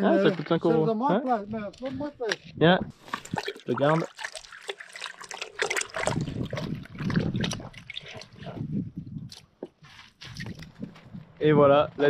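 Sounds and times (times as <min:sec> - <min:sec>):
water sloshing in a bucket: 0:02.3 - 0:09.5.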